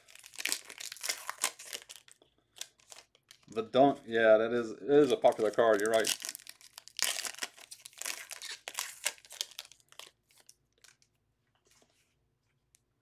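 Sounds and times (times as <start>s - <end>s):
foil wrapper tearing: 0.0s - 3.5s, 5.0s - 11.0s.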